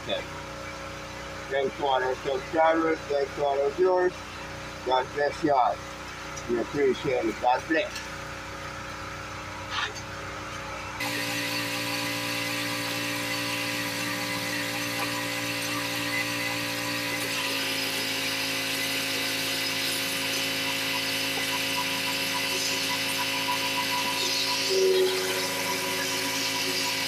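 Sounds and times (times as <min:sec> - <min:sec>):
pressure washer whine: 0:00.0 - 0:27.0
water spraying on concrete: 0:11.0 - 0:27.0.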